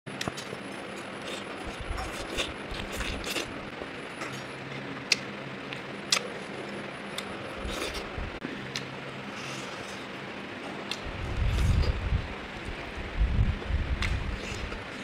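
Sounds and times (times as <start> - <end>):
steady low hum: 0.1 - 15.0.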